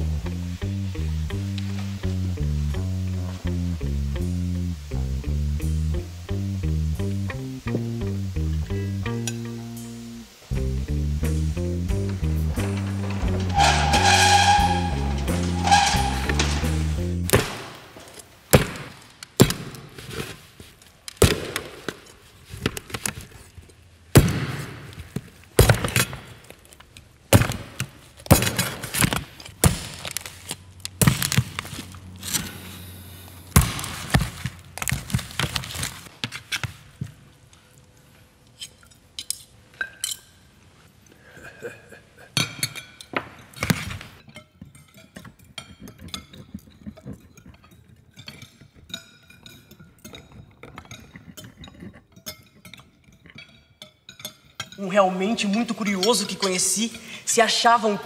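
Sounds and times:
cutlery clinking on metal tray: 44.3 - 54.8.

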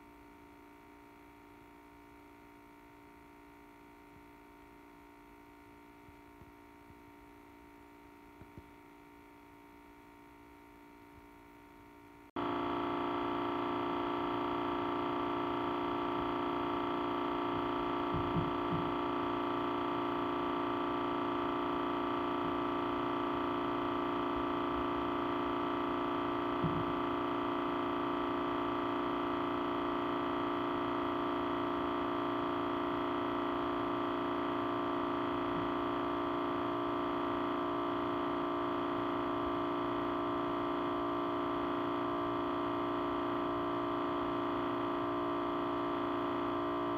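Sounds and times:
audio feedback drone: 0.0 - 46.9.

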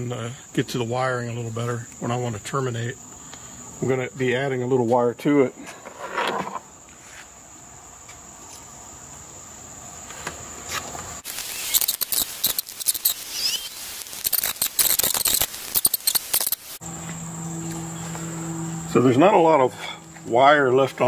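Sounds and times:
high insect buzz: 6.2 - 20.4
scratchy rustles and clicks: 10.7 - 16.8.

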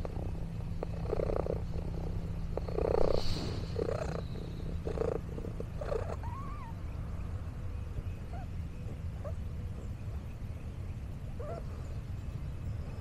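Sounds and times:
cat purring: 0.0 - 6.8.

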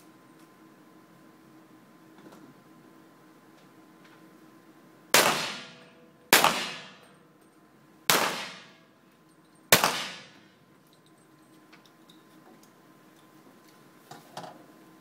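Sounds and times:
pistol shots echoing: 5.2 - 7.1, 8.1 - 8.8, 9.7 - 10.4.

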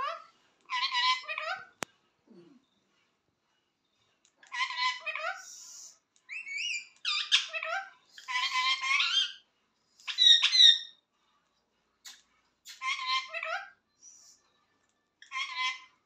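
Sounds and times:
parakeet squawking and chattering: 0.0 - 1.8, 4.5 - 9.4, 10.0 - 11.0, 12.7 - 13.8, 15.2 - 16.0.

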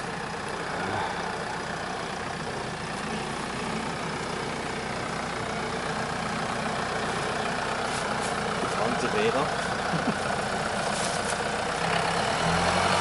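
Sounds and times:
car engine running at low revs: 0.0 - 13.0.

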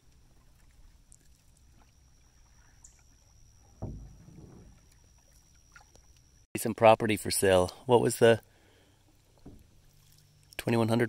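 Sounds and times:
paddle stroke swishing water: 0.0 - 3.1, 9.1 - 10.4
faint water sounds: 0.0 - 11.0.

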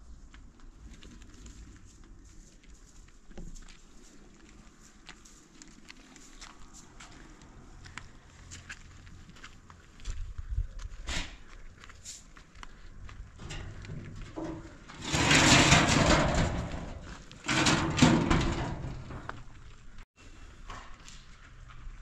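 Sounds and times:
corrugated metal sheet scraping: 13.4 - 19.5.

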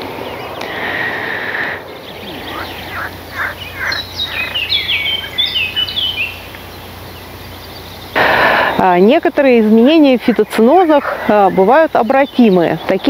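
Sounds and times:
songbird singing: 0.0 - 13.0
steady low hum: 0.0 - 13.0.

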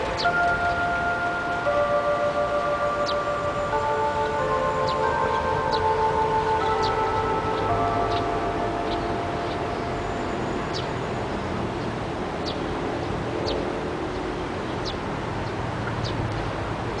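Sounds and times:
bell tone: 0.0 - 11.5
high bird chirps: 3.0 - 3.4, 4.8 - 11.4.

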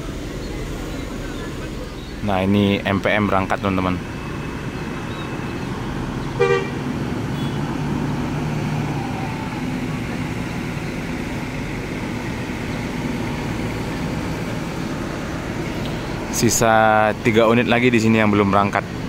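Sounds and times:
diesel bus engine rumble: 0.0 - 19.0
bus horn toot: 6.3 - 7.7.

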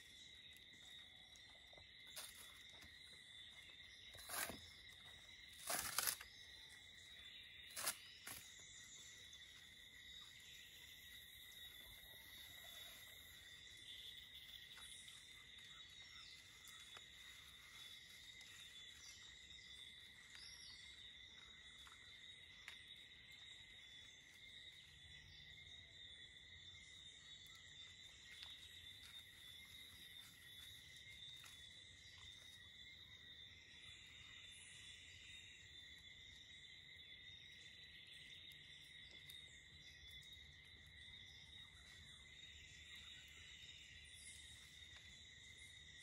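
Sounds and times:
high insect drone: 0.0 - 46.0
dry spathe tearing: 5.6 - 6.2.

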